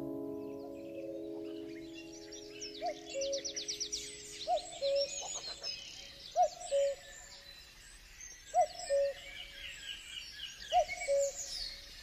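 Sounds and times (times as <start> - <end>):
cuckoo two-note call: 0.0 - 5.4
small birds twittering: 0.0 - 12.0.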